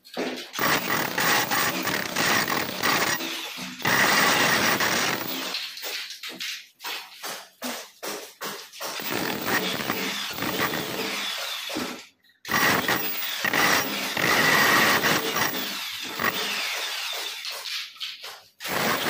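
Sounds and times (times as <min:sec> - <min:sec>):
demolition hammer chiselling wall: 0:00.0 - 0:19.0.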